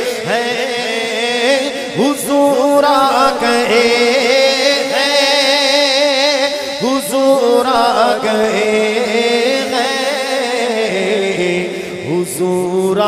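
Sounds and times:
man singing with vibrato: 0.0 - 13.0.

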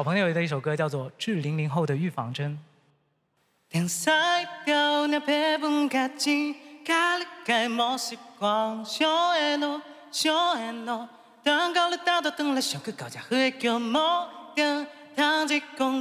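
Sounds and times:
man singing a cappella: 3.7 - 16.0.

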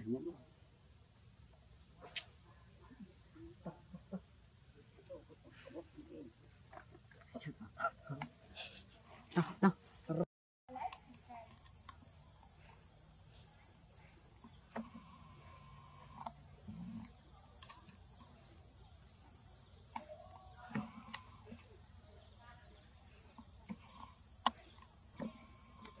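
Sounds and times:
insect chirping: 10.7 - 26.0.

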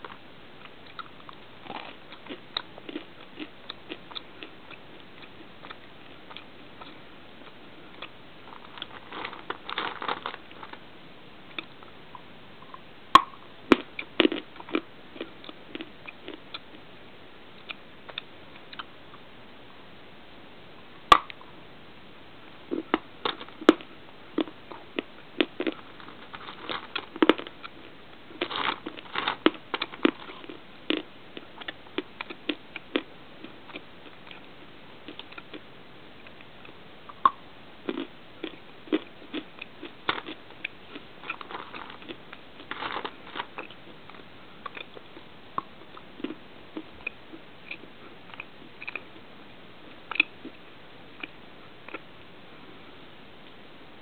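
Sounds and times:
clay being chewed crunchily: 0.0 - 10.8, 12.6 - 16.8, 22.7 - 49.2, 49.9 - 50.6, 51.2 - 52.1.

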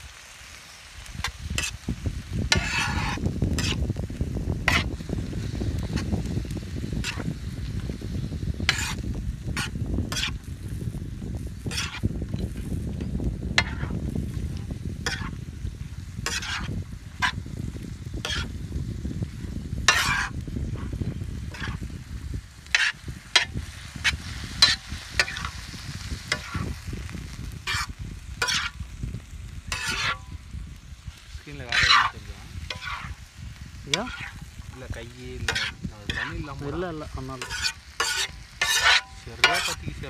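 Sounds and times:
meat sizzling: 0.0 - 40.0
steel spoon scraping iron pan: 2.5 - 3.8, 4.7 - 4.9, 7.0 - 7.3, 8.6 - 9.0, 9.6 - 10.4, 11.6 - 12.6, 13.6 - 14.0, 14.6 - 15.4, 16.2 - 17.4, 18.2 - 18.5, 19.9 - 20.9, 21.5 - 21.9, 22.7 - 25.5, 26.3 - 26.7, 27.6 - 28.8, 29.7 - 30.3, 31.6 - 33.2, 33.9 - 34.4, 35.4 - 36.6, 37.2 - 39.9.

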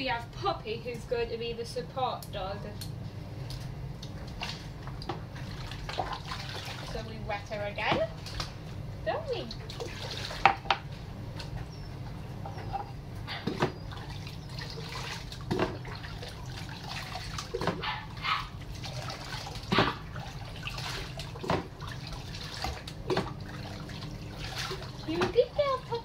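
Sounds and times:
steady low hum: 0.0 - 26.0
water pouring and splashing: 4.2 - 8.6, 9.4 - 11.6, 13.5 - 26.0.

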